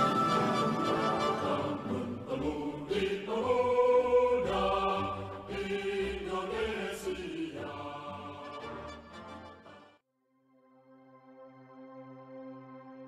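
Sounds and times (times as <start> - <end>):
slow choir-like chords: 0.0 - 9.0.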